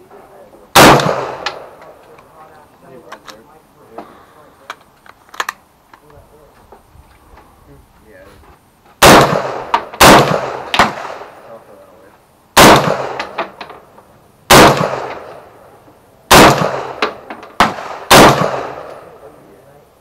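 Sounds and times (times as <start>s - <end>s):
rifle shots echoing: 0.7s - 2.0s, 9.0s - 11.6s, 12.6s - 13.8s, 14.5s - 15.6s, 16.3s - 19.4s.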